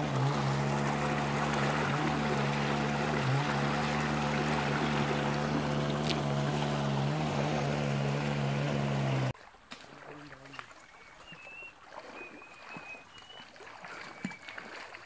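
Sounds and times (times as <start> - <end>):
motor humming: 0.0 - 9.3.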